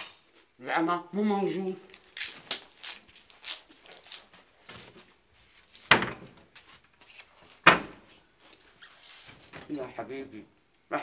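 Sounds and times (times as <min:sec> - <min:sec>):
cupboard doors banging shut: 0:05.9 - 0:06.5, 0:07.6 - 0:08.1.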